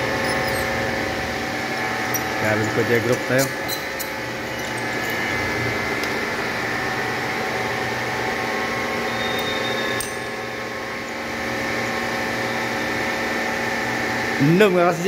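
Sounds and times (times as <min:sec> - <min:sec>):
milling machine cutting metal: 0:00.0 - 0:06.8.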